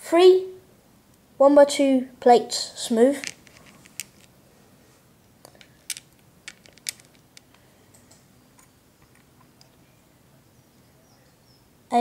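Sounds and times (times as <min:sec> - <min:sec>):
plastic toy bricks clicking: 0:03.2 - 0:04.3, 0:05.5 - 0:07.6.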